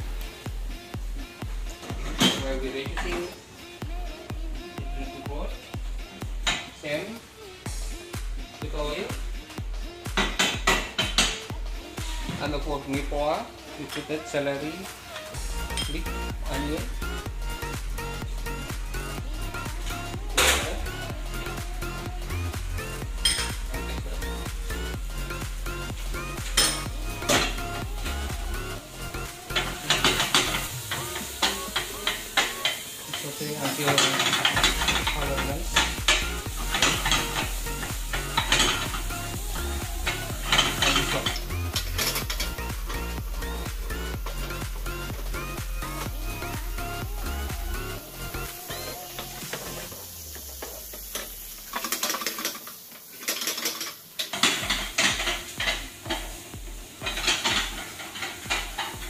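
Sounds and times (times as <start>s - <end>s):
vegetables sizzling in oil: 19.6s - 59.0s
pans clattering: 29.6s - 39.0s, 40.4s - 42.5s, 51.0s - 59.0s.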